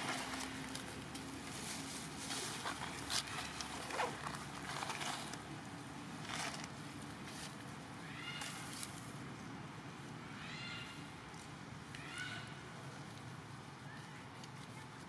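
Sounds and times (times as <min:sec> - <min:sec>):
dry leaves crackling: 0:00.0 - 0:09.2.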